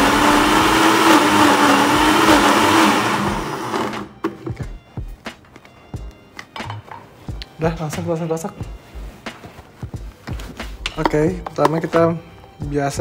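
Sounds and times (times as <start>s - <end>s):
electric blender running: 0.0s - 4.2s.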